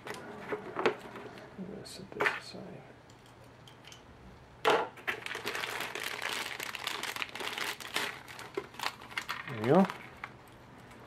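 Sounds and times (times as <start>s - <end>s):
plastic bag crinkling: 5.0s - 10.5s.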